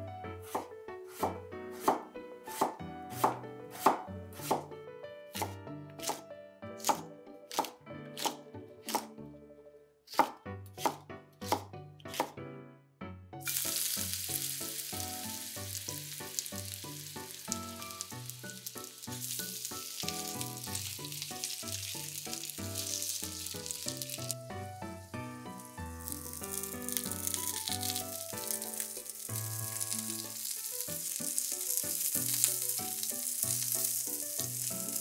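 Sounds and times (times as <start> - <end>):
soft background music: 0.0 - 35.0
knife chopping on cutting board: 0.4 - 4.7, 5.3 - 6.2, 6.8 - 9.1, 10.1 - 12.4
food sizzling in a pan: 13.4 - 35.0.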